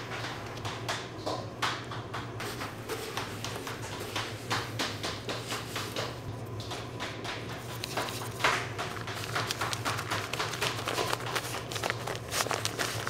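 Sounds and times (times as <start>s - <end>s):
low equipment hum: 0.0s - 13.0s
tapping and knocking: 0.1s - 13.0s.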